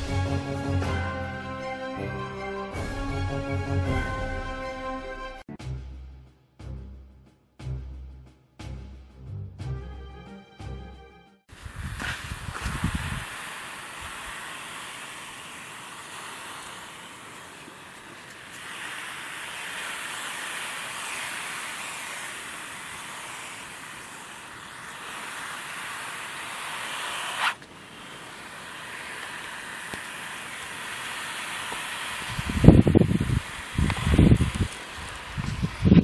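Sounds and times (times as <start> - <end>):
steady hissing noise: 11.5 - 36.0.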